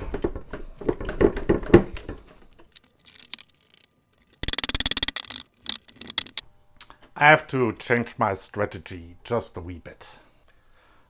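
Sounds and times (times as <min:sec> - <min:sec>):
wooden chair parts knocking: 0:00.0 - 0:02.4
rapid clatter: 0:03.1 - 0:06.4.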